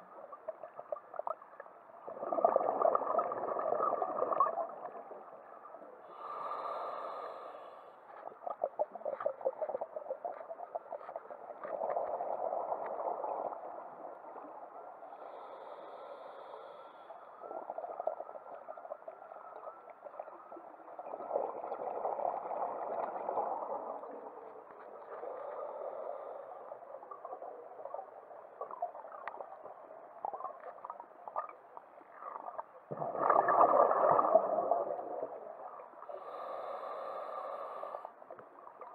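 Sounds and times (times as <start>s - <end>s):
exhaled bubbles gurgling: 0.0s - 7.2s, 8.5s - 15.7s, 17.4s - 37.3s
regulator inhalation hiss: 36.2s - 38.1s.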